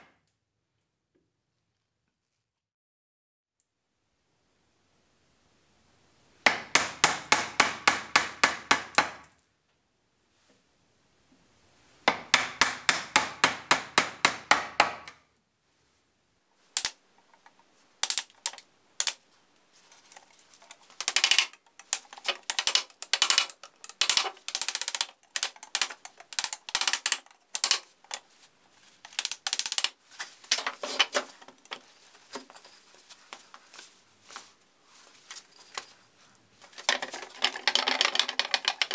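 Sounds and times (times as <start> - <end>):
hammer striking chisel: 6.5 - 9.3, 12.1 - 15.2.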